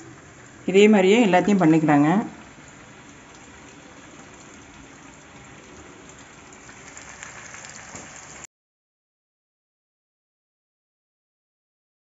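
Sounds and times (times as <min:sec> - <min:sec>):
chicken deep-frying in hot oil: 0:00.0 - 0:08.5.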